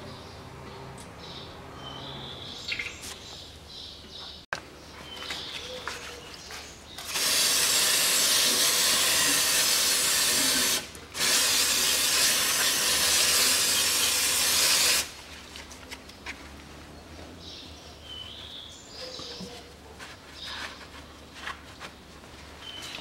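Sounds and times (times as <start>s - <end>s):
aerosol spray can hissing: 7.1s - 15.1s.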